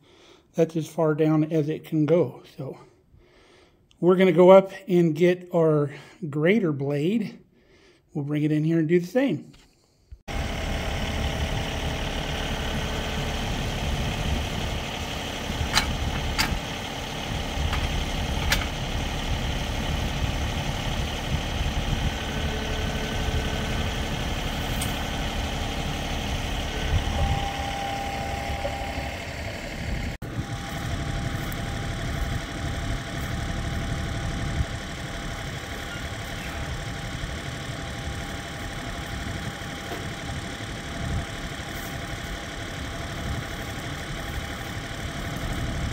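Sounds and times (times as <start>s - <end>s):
tractor diesel engine running: 10.3s - 45.9s.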